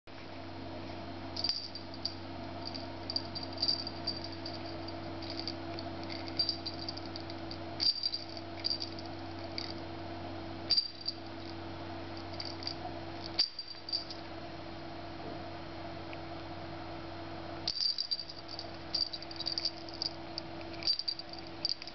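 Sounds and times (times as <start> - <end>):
steady low hum: 0.1 - 21.9
small jingle bell tinkling: 1.4 - 9.8, 10.7 - 11.6, 12.2 - 14.2, 17.7 - 21.9.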